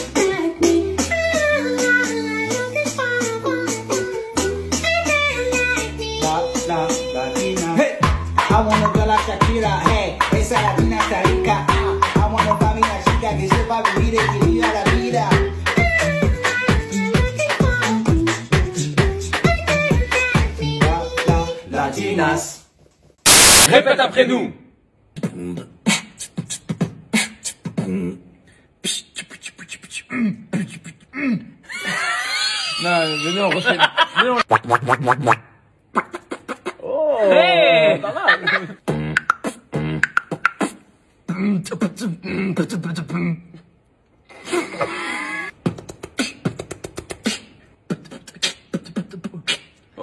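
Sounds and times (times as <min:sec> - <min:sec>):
person beatboxing: 0:06.2 - 0:21.5, 0:25.1 - 0:31.6, 0:34.4 - 0:36.9, 0:38.8 - 0:43.6, 0:45.5 - 0:50.0
fast mouth clicks: 0:25.2 - 0:27.8, 0:28.8 - 0:31.1, 0:34.5 - 0:36.8, 0:38.9 - 0:40.9, 0:45.6 - 0:49.9.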